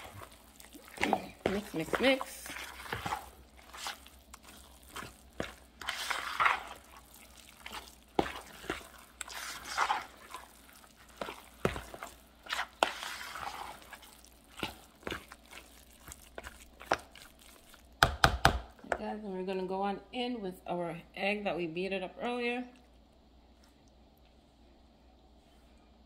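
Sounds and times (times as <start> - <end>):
spoon stirring wet mixture: 0.0 - 19.8, 21.8 - 24.9.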